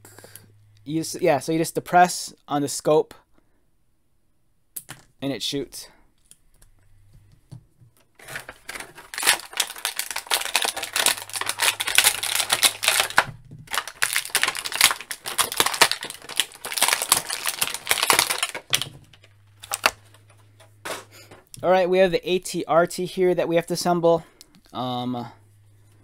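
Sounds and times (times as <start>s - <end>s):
plastic bag crinkling: 8.2s - 21.5s.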